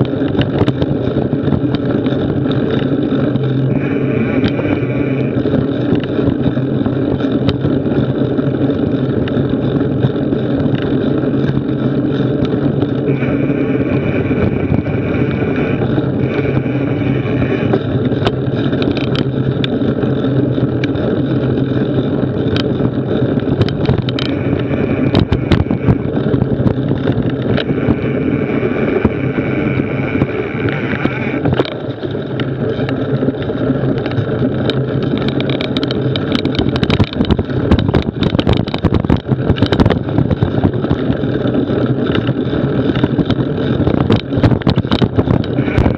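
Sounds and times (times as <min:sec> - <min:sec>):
bike rattling over bumps: 0:00.0 - 0:45.9
bike tyres rumbling on dirt: 0:00.0 - 0:45.9
wind noise: 0:00.0 - 0:45.9
high buzz: 0:13.0 - 0:18.5, 0:27.4 - 0:31.6.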